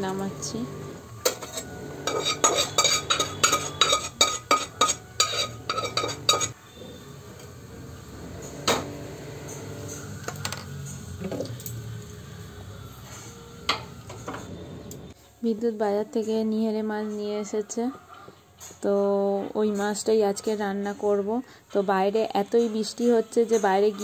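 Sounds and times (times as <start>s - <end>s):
low steady hum: 0.0s - 15.6s
utensil clinking on steel pot: 1.3s - 6.6s.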